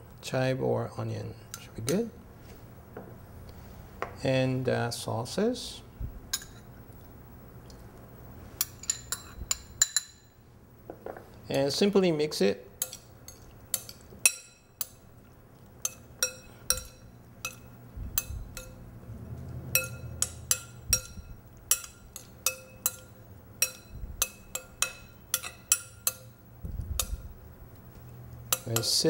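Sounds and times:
metal spoon clinking against glass bowl: 15.8s - 18.8s, 19.7s - 26.4s, 28.5s - 29.0s.

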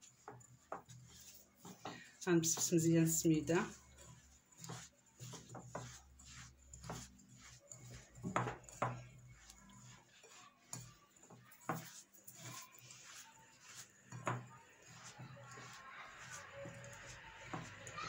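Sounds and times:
hands rubbing grainy semolina: 0.0s - 18.0s.

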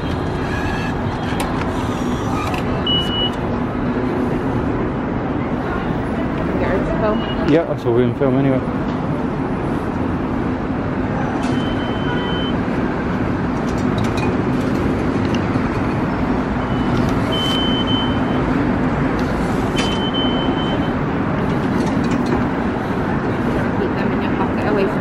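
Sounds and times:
high electronic beeps: 11.5s - 12.6s.

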